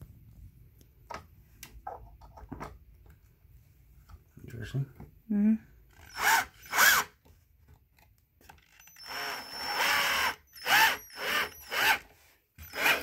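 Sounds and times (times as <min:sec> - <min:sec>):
cordless screwdriver motor revving: 0:08.8 - 0:12.0, 0:12.6 - 0:13.0.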